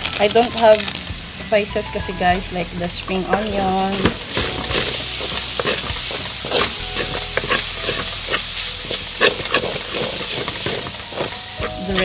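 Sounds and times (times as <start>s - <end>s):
noodles sizzling in a wok: 0.0s - 12.0s
spatula scraping and knocking a pan: 3.1s - 12.0s.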